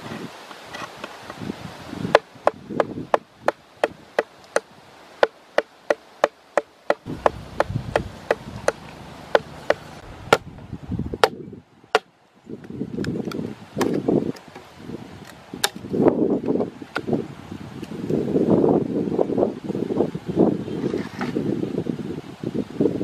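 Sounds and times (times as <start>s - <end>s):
stone knocking on bamboo tube: 2.1s - 10.5s.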